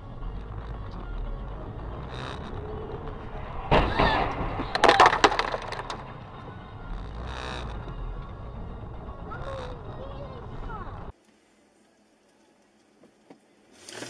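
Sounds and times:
low car hum: 0.0 - 11.1
sharp cracks and clattering: 2.0 - 8.3
loud impact: 2.3 - 6.9.

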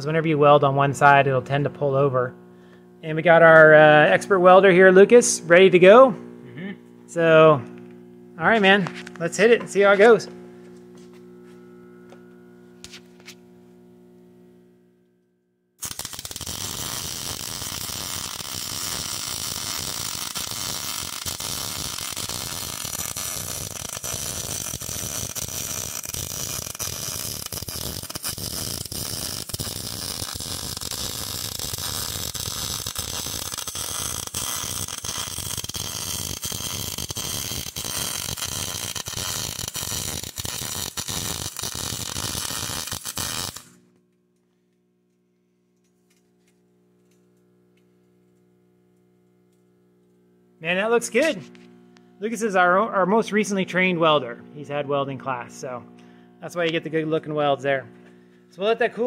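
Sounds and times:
welder arc crackling: 15.8 - 43.8, 49.2 - 54.1.

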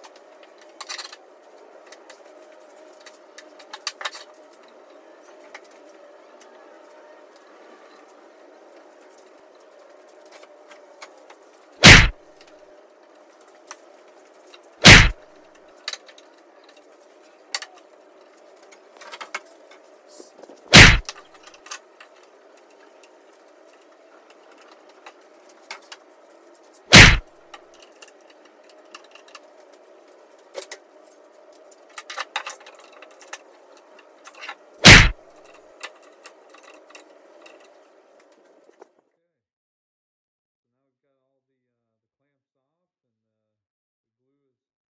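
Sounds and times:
loud sharp whacks: 11.8 - 12.2, 14.8 - 15.2, 20.7 - 21.1, 26.9 - 27.3, 34.8 - 35.2.

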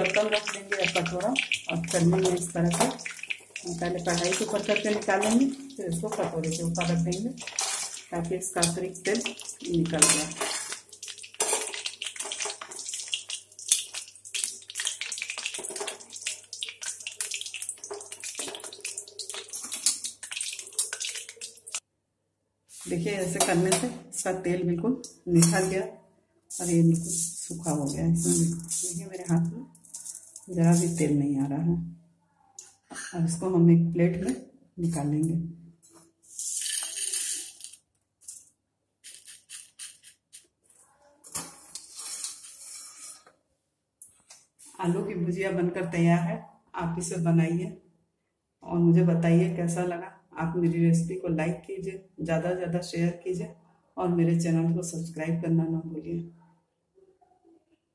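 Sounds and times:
fingers stirring crisp strands: 0.0 - 21.8, 26.5 - 31.0, 39.0 - 40.5
fried snack crackling and sizzling: 0.0 - 21.8, 26.6 - 31.1
fried snack strands rattling into bowl: 26.6 - 31.0, 36.3 - 38.4.

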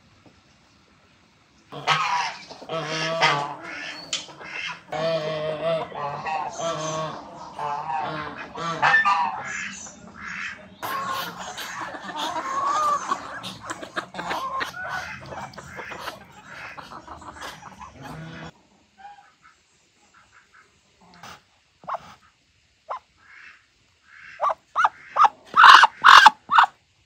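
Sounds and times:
geese honking: 1.7 - 19.6, 22.9 - 26.7
chickens and ducks calling: 1.7 - 26.8.

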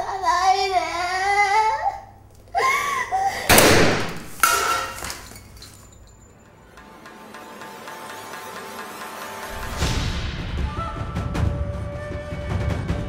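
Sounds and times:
handgun shots: 3.5 - 5.1.

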